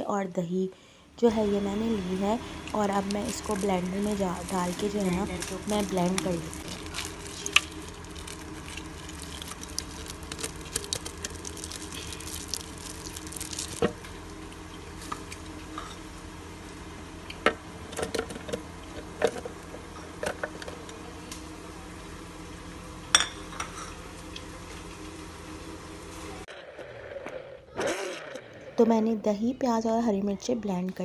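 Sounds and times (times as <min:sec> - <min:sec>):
steady low hum: 0:00.0 - 0:31.0
yogurt squelching: 0:01.3 - 0:15.5.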